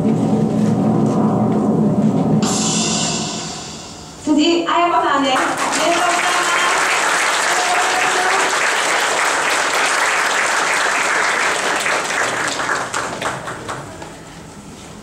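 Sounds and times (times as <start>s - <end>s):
audience applauding: 5.4s - 14.2s.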